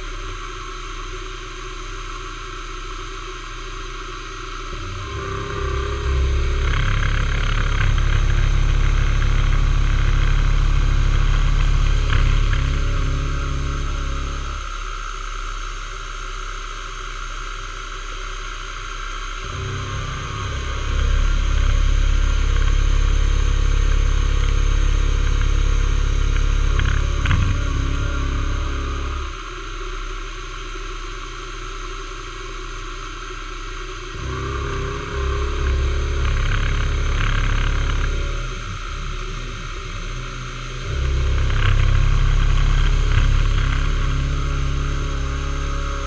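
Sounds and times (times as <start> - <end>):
milling spindle motor running: 0.0 - 46.0
end mill cutting metal: 4.6 - 15.0, 19.4 - 29.6, 34.1 - 46.0.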